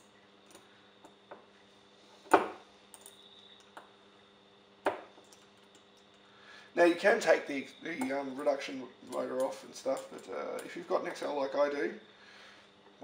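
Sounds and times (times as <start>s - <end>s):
light clicks of metal parts: 2.9s - 3.9s, 5.2s - 6.3s, 9.0s - 11.2s
sharp knocks on desk: 4.8s - 5.1s.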